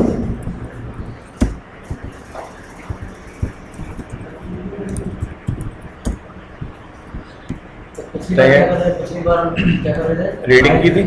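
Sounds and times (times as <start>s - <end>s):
room hum: 0.0s - 11.0s
keyboard and mouse clicks: 1.3s - 7.6s.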